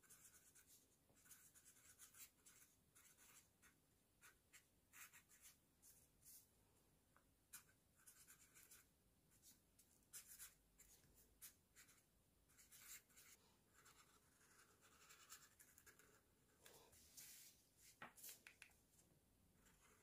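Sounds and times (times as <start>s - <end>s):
marker scratching on paper: 0.0s - 6.4s, 7.5s - 16.3s.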